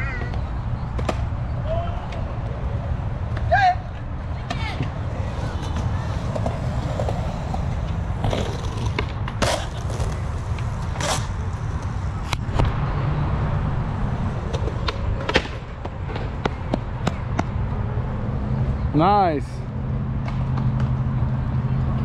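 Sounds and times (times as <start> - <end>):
skateboard wheels rolling on concrete: 0.0 - 22.0
skateboard striking the ground: 4.4 - 12.7, 14.4 - 17.5.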